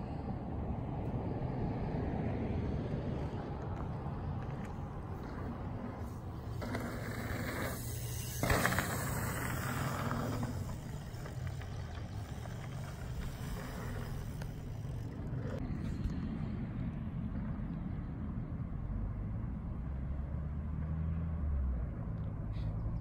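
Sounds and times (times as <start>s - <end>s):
bicycle tyres rolling on dirt: 1.8s - 17.1s.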